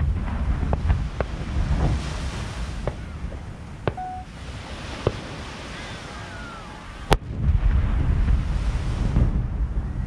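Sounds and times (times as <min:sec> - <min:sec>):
distant fireworks pops: 0:00.0 - 0:02.0, 0:02.8 - 0:04.2, 0:05.0 - 0:05.3
surf rumble: 0:00.0 - 0:10.0
wind buffeting microphone: 0:00.0 - 0:10.0
steady beep: 0:03.9 - 0:04.3.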